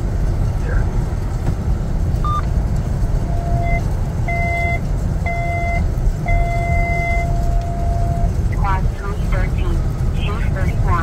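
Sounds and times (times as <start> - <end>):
truck and road rumble: 0.0 - 11.0
electronic beeper beeping: 3.3 - 8.3.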